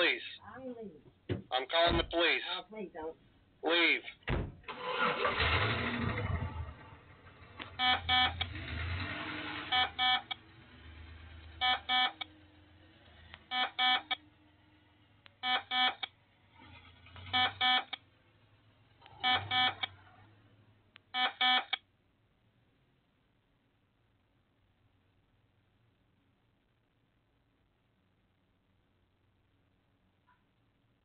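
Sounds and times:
car engine hum: 4.3s - 21.0s
electronic double beep: 7.8s - 8.4s, 9.7s - 10.4s, 11.6s - 12.2s, 13.5s - 14.2s, 17.3s - 18.0s, 19.2s - 19.9s.

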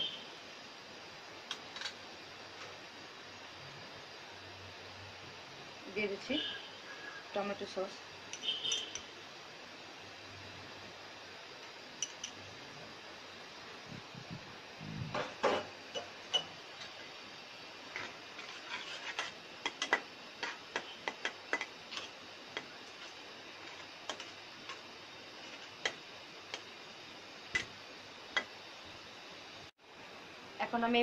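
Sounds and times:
steady low hiss: 0.0s - 31.0s
spatula scraping cooking pan: 17.8s - 26.6s.

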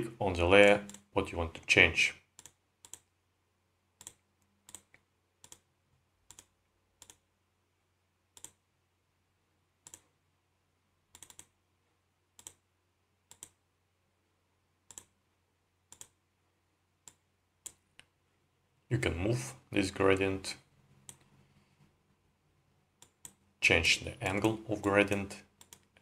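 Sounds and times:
computer mouse clicks: 0.8s - 1.1s, 2.4s - 3.1s, 4.0s - 5.7s, 6.3s - 7.3s, 8.3s - 8.6s, 9.8s - 10.1s, 11.1s - 11.6s, 12.4s - 12.6s, 13.3s - 13.6s, 14.9s - 15.2s, 15.9s - 16.2s, 17.0s - 18.1s, 21.0s - 21.4s, 23.0s - 23.4s, 25.6s - 26.0s.

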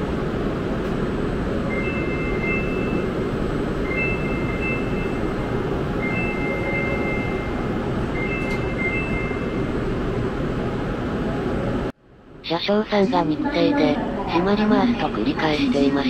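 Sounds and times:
train humming at platform: 0.0s - 16.0s
two-tone electronic warning beeps: 1.7s - 3.2s, 3.8s - 5.4s, 6.0s - 9.7s.

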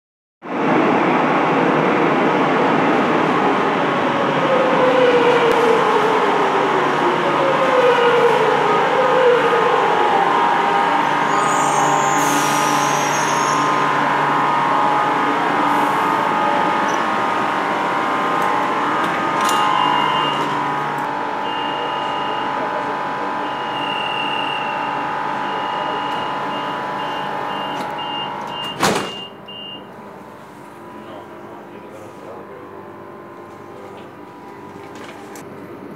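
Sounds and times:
electric train rumbling: 0.4s - 35.9s
train whine falling in pitch: 4.5s - 29.3s
high repeating warning beep: 19.6s - 20.5s, 21.4s - 22.6s, 23.4s - 29.8s
train doors shutting thump: 27.6s - 29.3s.

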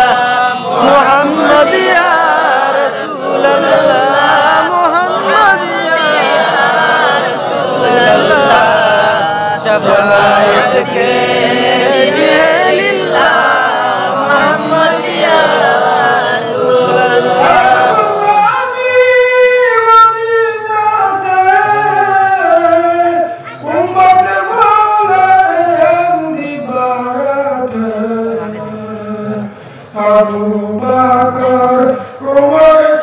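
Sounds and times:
group of men chanting: 0.0s - 18.6s.

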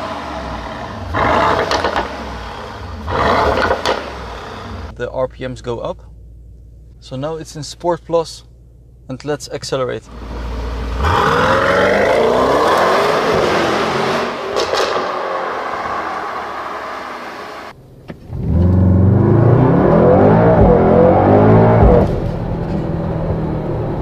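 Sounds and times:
car engine accelerating: 0.0s - 4.9s, 10.1s - 24.0s
exhaust cracks: 0.0s - 9.2s, 10.0s - 24.0s.

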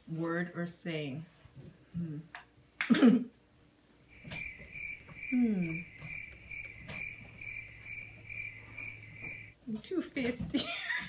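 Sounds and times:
person humming: 2.0s - 2.3s, 5.3s - 5.9s
crickets chirping: 4.1s - 9.6s.

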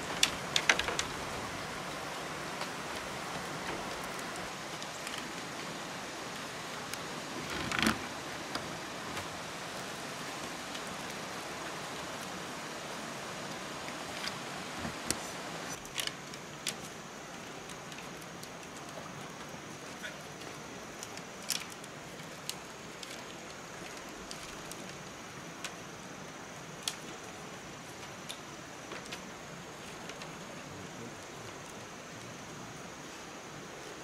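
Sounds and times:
bamboo poles clicking and knocking: 0.0s - 1.4s, 14.1s - 19.4s, 20.0s - 25.8s
steady hiss: 0.0s - 34.0s.

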